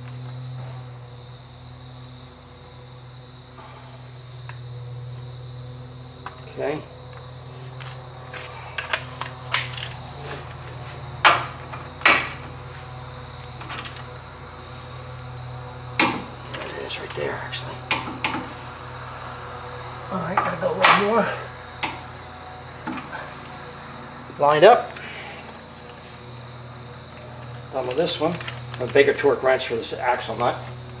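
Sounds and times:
steady low hum: 0.0s - 31.0s
metal tools clanking: 16.0s - 18.5s.

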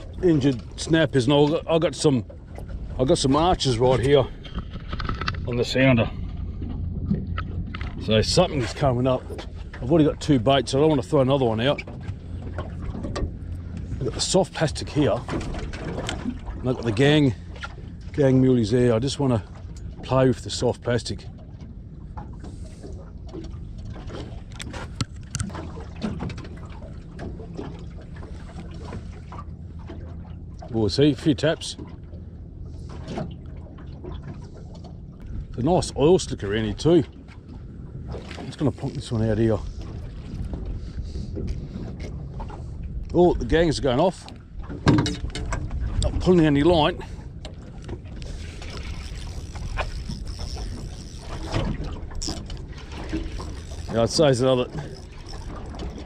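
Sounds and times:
low rumble aboard boat: 0.0s - 56.0s
fishing reel clicks and knocks: 48.2s - 56.0s.

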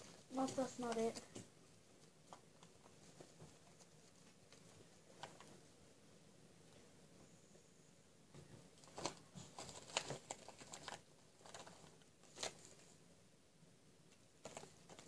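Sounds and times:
plastic toys clicking and rustling: 0.0s - 1.4s, 8.8s - 12.8s, 14.4s - 15.0s.

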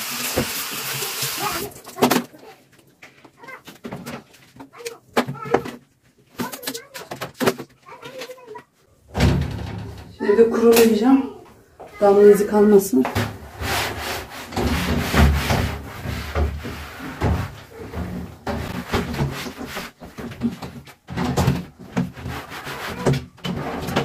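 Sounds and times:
cloth wiping shower panels: 12.0s - 24.0s.

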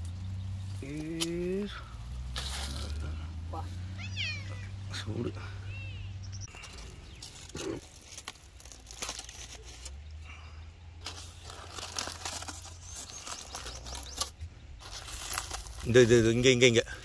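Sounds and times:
aluminium foil crinkling and tearing: 0.0s - 3.0s, 6.5s - 10.0s, 11.0s - 17.0s.

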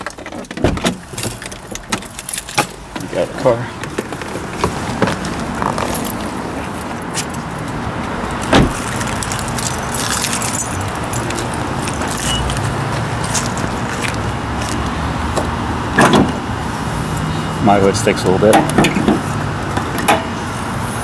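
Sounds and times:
keys jingling: 0.0s - 3.0s, 5.3s - 7.8s, 8.4s - 14.8s
car door shutting: 0.2s - 3.2s, 8.4s - 9.1s.

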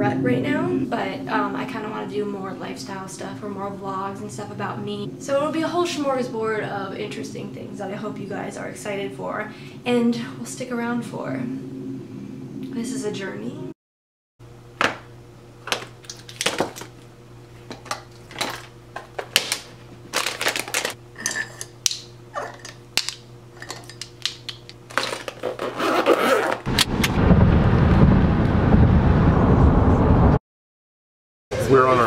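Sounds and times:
low hum: 0.0s - 13.8s
pouches rustling and clicking: 17.6s - 21.0s, 22.4s - 26.7s.

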